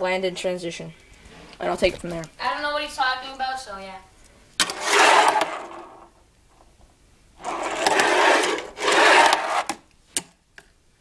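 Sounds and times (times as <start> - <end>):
small wheels rolling on ramp: 4.6 - 6.1, 7.4 - 9.8.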